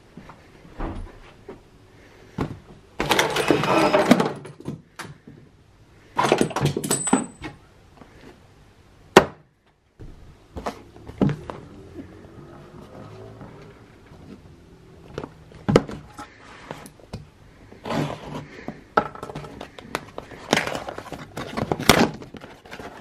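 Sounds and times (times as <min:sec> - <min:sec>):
box rustling and knocking: 0:15.1 - 0:16.9, 0:17.9 - 0:23.0.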